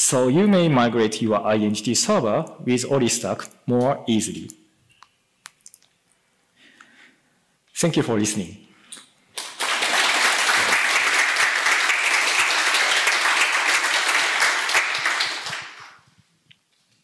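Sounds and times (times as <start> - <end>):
audience applauding: 9.4 - 16.0.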